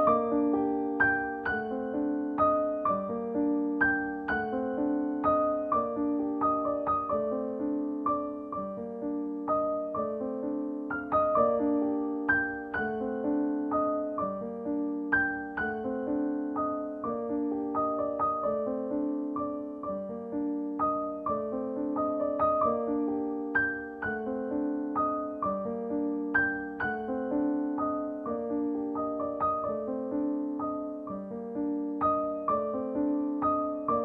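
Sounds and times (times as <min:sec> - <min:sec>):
piano music: 0:00.0 - 0:34.0.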